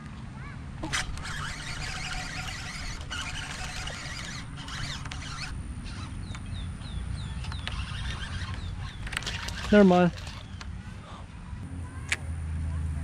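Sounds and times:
scratchy rustle: 0:00.8 - 0:06.1.

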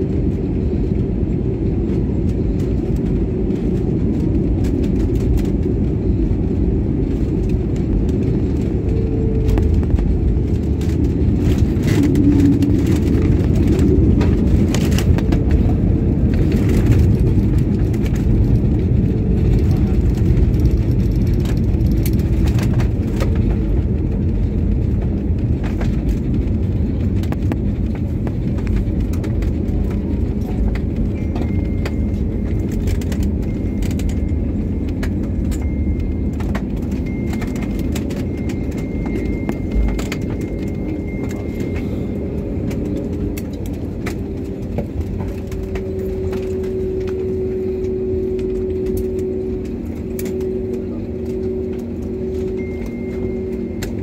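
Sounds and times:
airliner cabin rumble: 0:00.0 - 0:54.0
steady engine tones: 0:00.0 - 0:54.0
faint high whine: 0:44.8 - 0:54.0.

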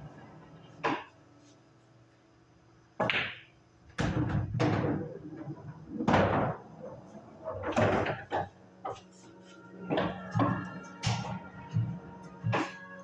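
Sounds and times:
pool balls clacking: 0:00.8 - 0:01.1, 0:03.0 - 0:09.0, 0:09.8 - 0:13.0.

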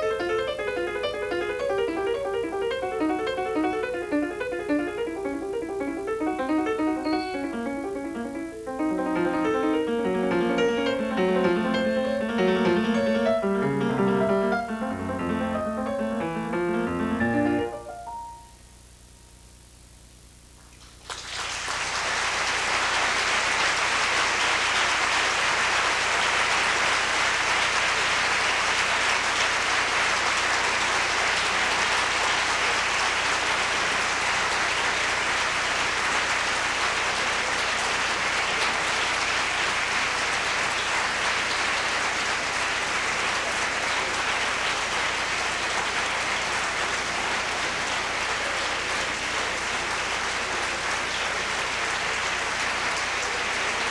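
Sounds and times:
audience applauding: 0:00.0 - 0:16.0, 0:20.8 - 0:53.9.

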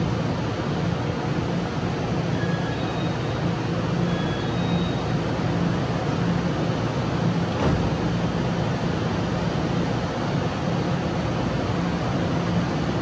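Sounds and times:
train equipment humming: 0:00.0 - 0:13.0.

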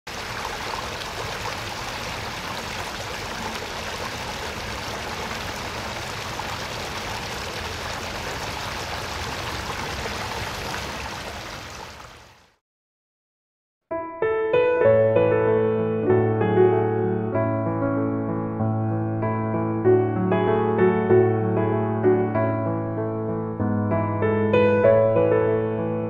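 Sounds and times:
water rushing over rocks: 0:00.1 - 0:12.5.

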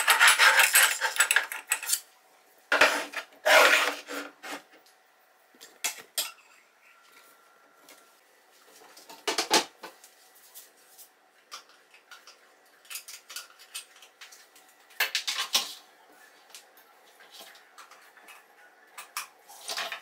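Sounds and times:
scrapes on countertop: 0:02.7 - 0:04.7.

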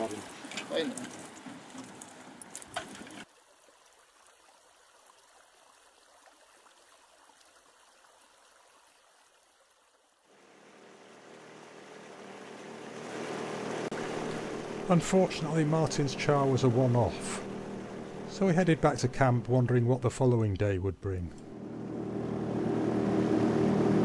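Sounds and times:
water lapping around boat: 0:00.0 - 0:19.8
outboard motor hum: 0:10.3 - 0:20.6, 0:21.4 - 0:24.0.

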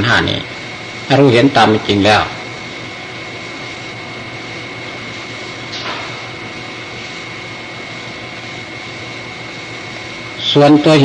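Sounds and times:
recording hiss and hum: 0:00.0 - 0:11.0
thin high whine: 0:00.0 - 0:11.0.

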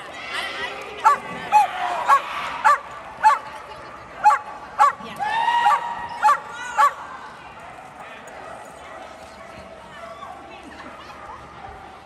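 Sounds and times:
dogs barking: 0:01.0 - 0:03.5, 0:04.2 - 0:05.0, 0:05.7 - 0:07.0.

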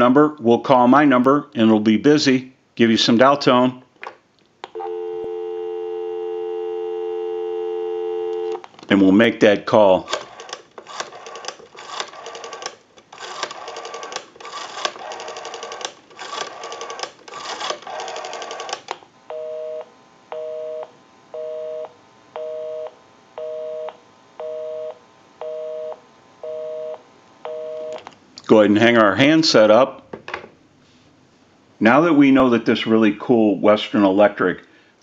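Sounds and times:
rotary dial clicking: 0:10.1 - 0:19.0.

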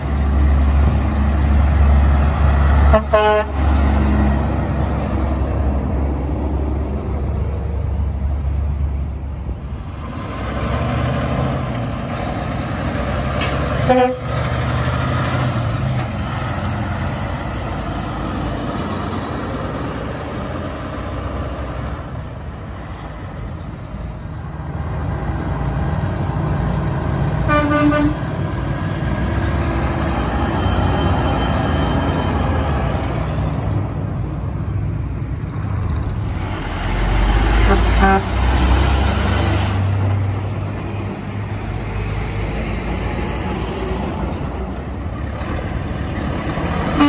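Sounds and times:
diesel trucks passing: 0:00.0 - 0:47.0
truck air horn blast: 0:02.8 - 0:03.8, 0:13.4 - 0:14.4, 0:27.4 - 0:28.2, 0:37.6 - 0:38.4.

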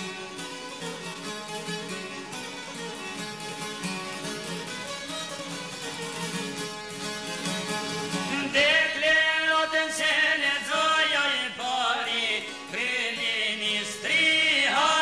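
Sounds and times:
plucked strings: 0:00.0 - 0:10.8
man singing: 0:08.3 - 0:15.0.

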